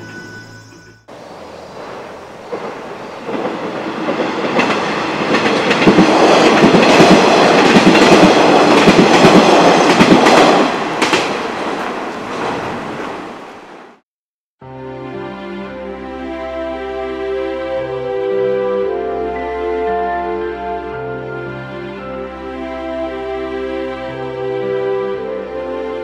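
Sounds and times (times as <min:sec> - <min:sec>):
train wheels clattering over rail joints: 0:01.8 - 0:13.1.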